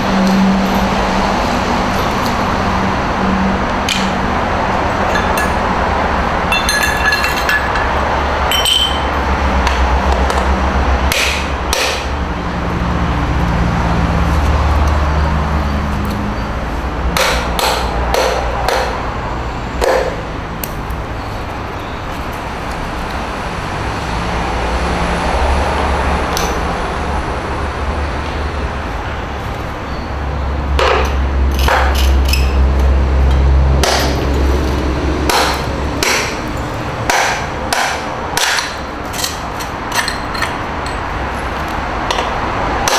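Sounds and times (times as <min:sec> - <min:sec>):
ringing clinks: 0:05.0 - 0:05.6, 0:06.5 - 0:09.2
porcelain pieces knocking on concrete: 0:06.5 - 0:09.1.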